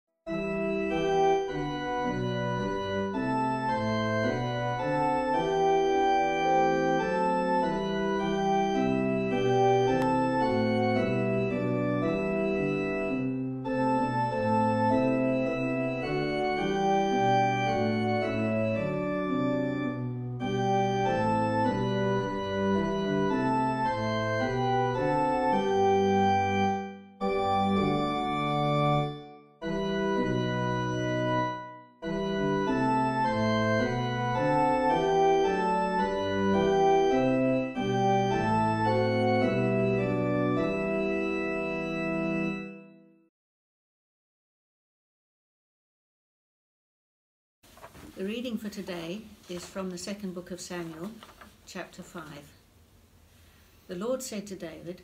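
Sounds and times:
organ playing sustained chords: 0:00.3 - 0:43.2.

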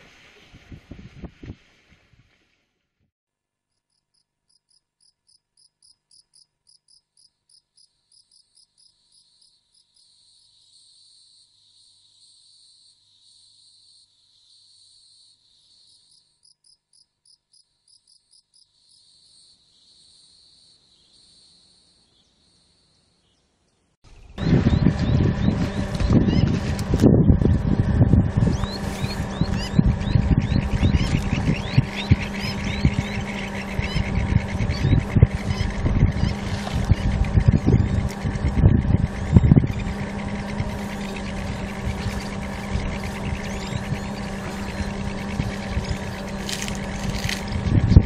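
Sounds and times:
crickets chirping: 0:04.1 - 0:22.1.

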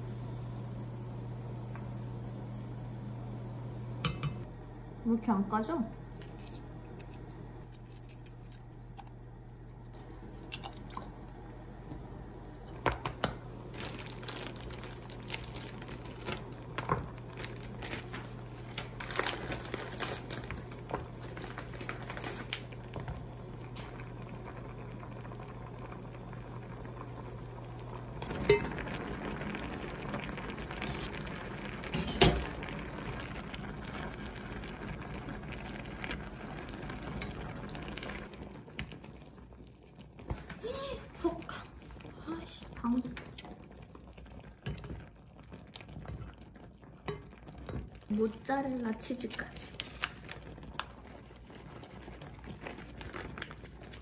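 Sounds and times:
sauce simmering: 0:00.0 - 0:05.0, 0:06.0 - 0:54.0
steady low hum: 0:00.0 - 0:38.7
eggshells cracking and peeling: 0:06.2 - 0:09.0
plastic bag crinkling: 0:13.6 - 0:22.8, 0:49.2 - 0:54.0.

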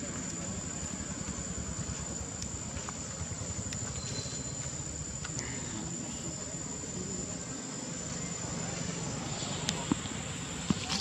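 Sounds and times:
constant low rumble: 0:00.0 - 0:11.0
high-pitched insect buzz: 0:03.8 - 0:04.8.

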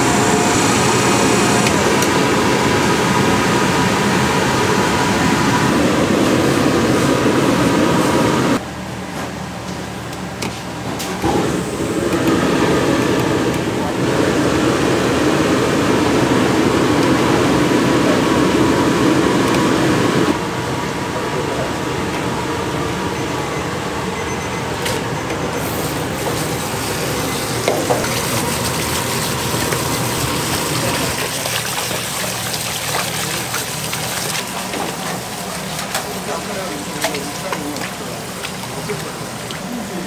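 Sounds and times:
running water rushing: 0:25.9 - 0:40.0.

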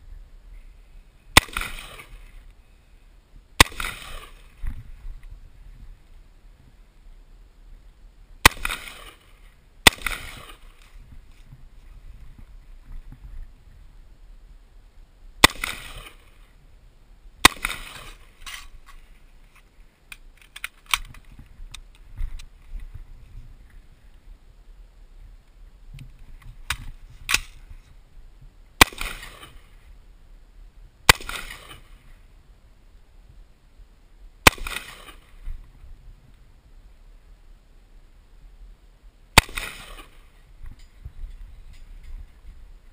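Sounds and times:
rifle shots with echo: 0:01.3 - 0:02.3, 0:03.6 - 0:04.6, 0:08.4 - 0:10.9, 0:15.4 - 0:16.4, 0:17.4 - 0:18.6, 0:28.8 - 0:29.7, 0:31.1 - 0:32.0, 0:34.4 - 0:35.4, 0:39.4 - 0:40.3.

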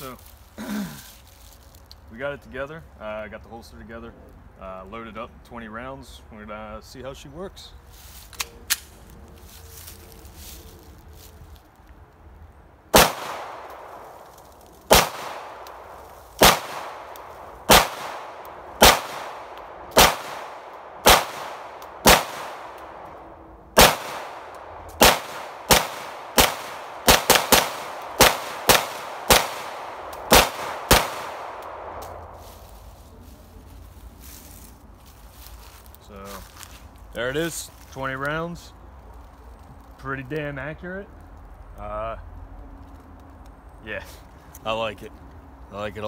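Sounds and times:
pistol shots with echo: 0:12.9 - 0:14.0, 0:14.9 - 0:23.0, 0:23.8 - 0:32.0.

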